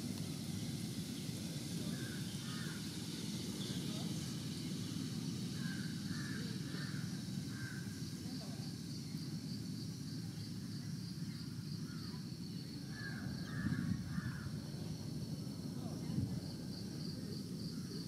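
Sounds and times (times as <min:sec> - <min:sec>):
faint high insect chirp: 0:00.0 - 0:18.0
bird calls: 0:01.8 - 0:08.0.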